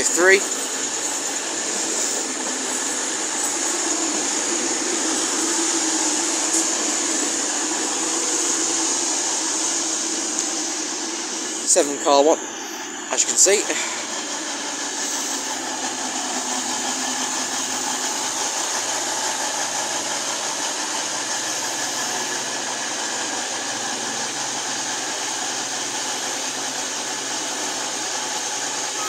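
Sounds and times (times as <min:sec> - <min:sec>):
diesel train passing slowly: 0:00.0 - 0:29.0.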